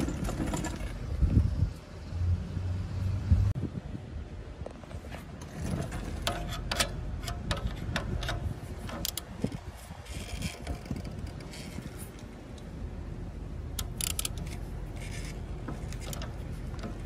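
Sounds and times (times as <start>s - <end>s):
wrench clicking on nut: 13.8s - 14.6s.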